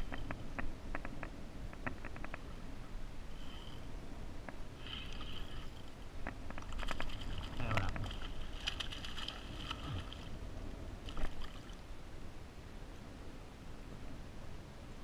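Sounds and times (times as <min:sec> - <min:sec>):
fish splashing at the surface: 0:06.8 - 0:10.3.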